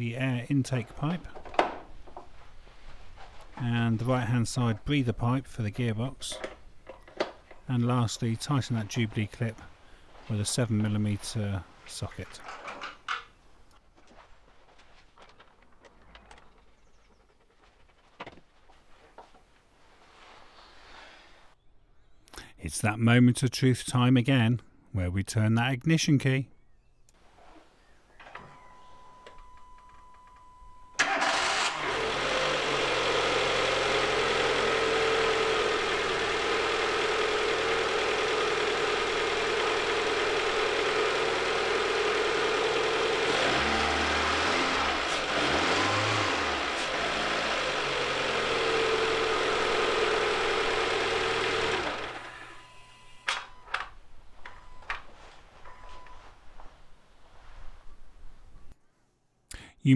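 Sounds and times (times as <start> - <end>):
car engine idling: 31.0 - 52.6
car engine starting: 31.0 - 53.6.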